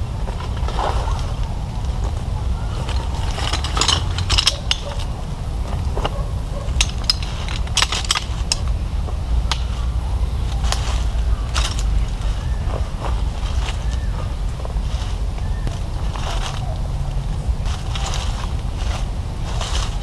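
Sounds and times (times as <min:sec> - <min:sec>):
steady low rumble: 0:00.0 - 0:20.0
small hard objects clinking: 0:02.1 - 0:05.2, 0:06.0 - 0:08.7, 0:10.5 - 0:14.1.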